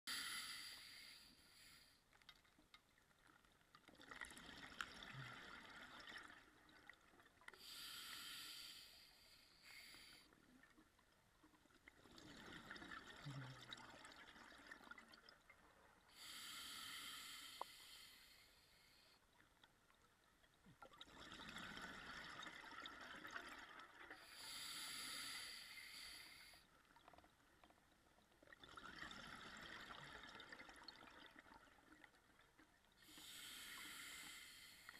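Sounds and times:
diver breathing through regulator: 16.2s - 19.2s, 24.4s - 26.6s, 33.1s - 34.9s.

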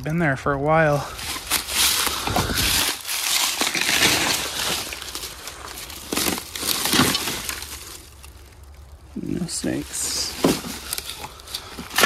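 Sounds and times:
dry leaves rustling and crunching: 0.8s - 12.0s
sharp cracks and knocks: 1.3s - 8.8s, 10.2s - 12.0s.

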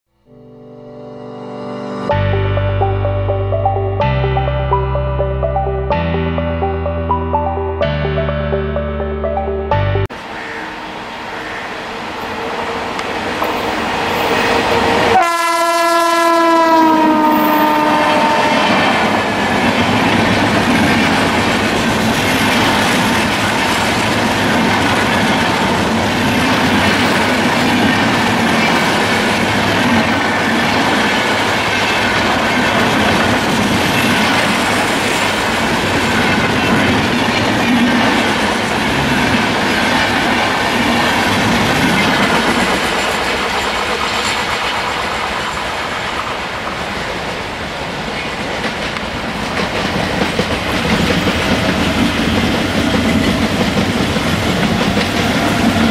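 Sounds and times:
train passing with wheel clatter: 10.1s - 55.9s
locomotive horn blast: 15.1s - 19.1s.

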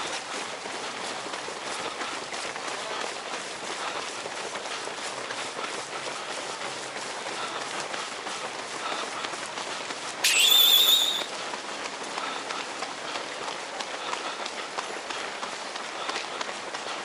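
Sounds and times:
running shoes pattering on asphalt: 0.0s - 17.0s
shrill wavering whistle: 10.2s - 11.3s.

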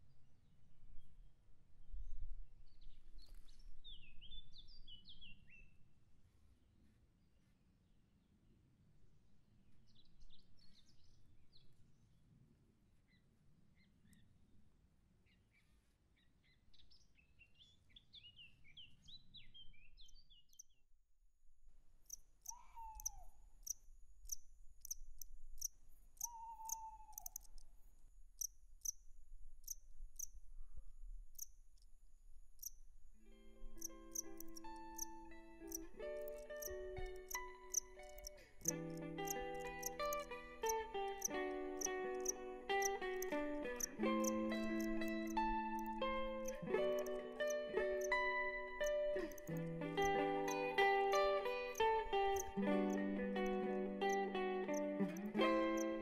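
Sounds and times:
small birds chirping and singing: 15.3s - 20.8s, 22.1s - 27.8s, 33.6s - 56.0s
high insect-like chirping: 22.1s - 30.4s, 31.2s - 33.0s, 33.6s - 56.0s
owl hoots: 22.4s - 23.4s, 26.2s - 27.5s.

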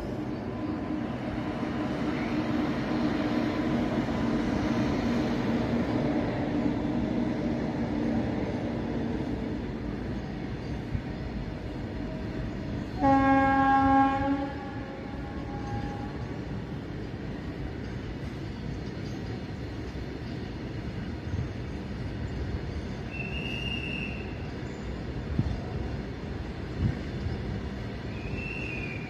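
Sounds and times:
freight train passing: 0.0s - 29.0s
train horn: 12.9s - 16.4s.

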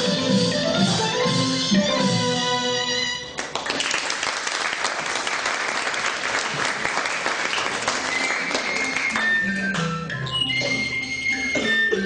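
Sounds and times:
audience applauding: 3.4s - 9.4s.

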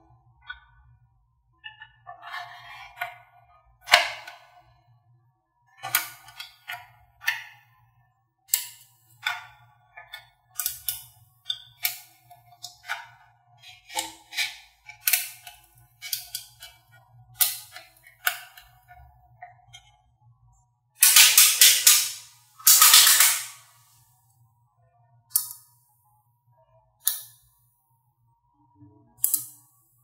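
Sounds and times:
magnet balls clicking: 21.0s - 23.7s.

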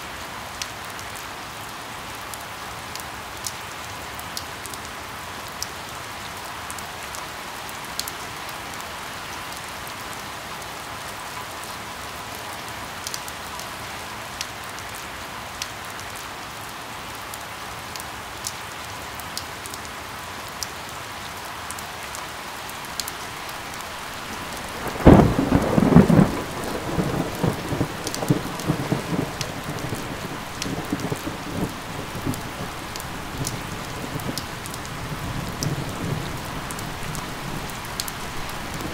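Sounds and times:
steady rain falling: 0.0s - 38.9s
sharp raindrop ticks: 22.7s - 38.9s
rolling thunder rumbles: 23.6s - 38.9s
loud thunderclap: 24.3s - 34.4s.

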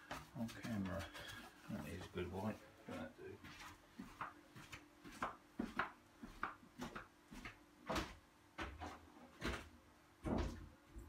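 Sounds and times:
footsteps on wooden boards: 3.4s - 10.8s.

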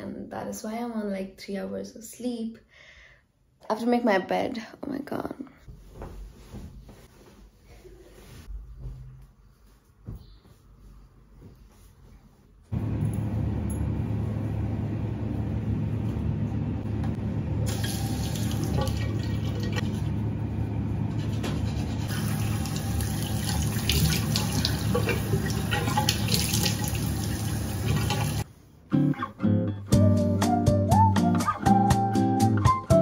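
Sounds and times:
tap water running into basin: 17.7s - 20.0s, 21.3s - 28.4s
water splashing: 22.1s - 28.4s.

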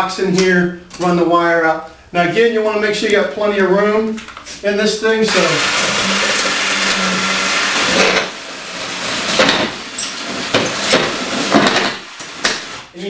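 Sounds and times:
hot-cutting tool humming and hissing: 5.3s - 9.5s.

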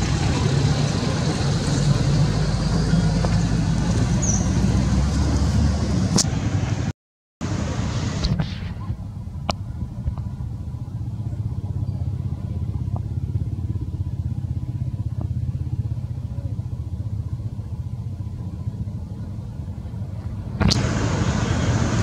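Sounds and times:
loud rush of noise: 0.0s - 11.4s, 20.4s - 22.0s
engine idling: 7.4s - 22.0s.

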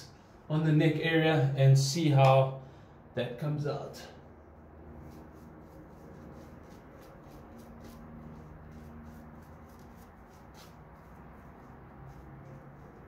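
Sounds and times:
shaving brush swishing: 4.9s - 13.0s.

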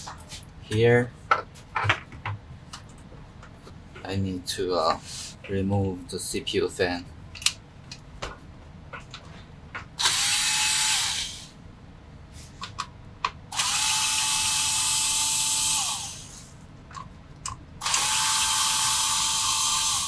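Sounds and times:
electric screwdriver whirring: 10.0s - 11.5s, 13.5s - 16.4s, 17.8s - 20.0s.

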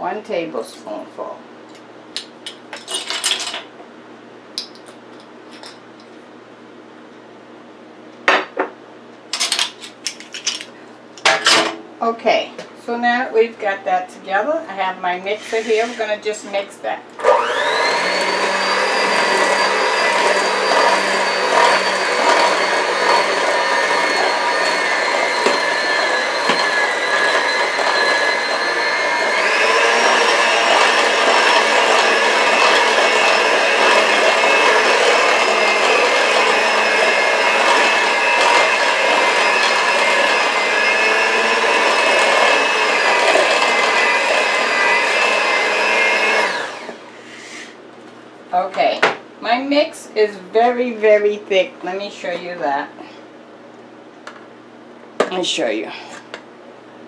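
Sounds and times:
electric mixer whirring: 17.2s - 47.2s.

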